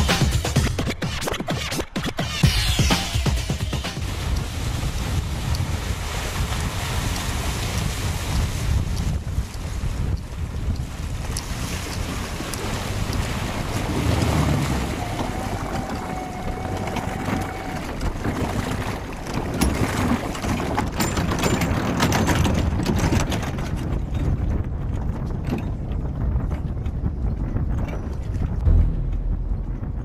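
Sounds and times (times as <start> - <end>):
wind buffeting microphone: 4.0 - 30.0
boat engine running: 11.8 - 23.2, 28.2 - 30.0.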